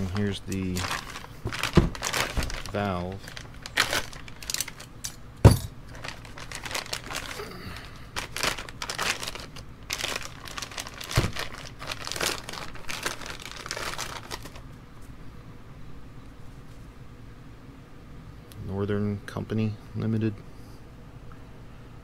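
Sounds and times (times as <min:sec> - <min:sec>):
plastic bag crinkling and tearing: 0:00.0 - 0:05.0, 0:05.8 - 0:14.7.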